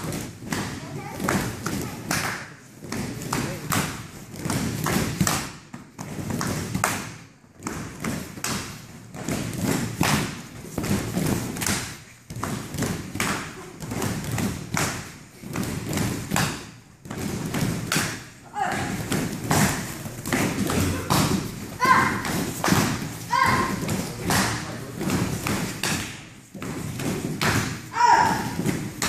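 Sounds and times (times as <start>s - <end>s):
feet slapping mats: 0.0s - 29.0s
kicks thudding on padded protectors: 7.6s - 29.0s.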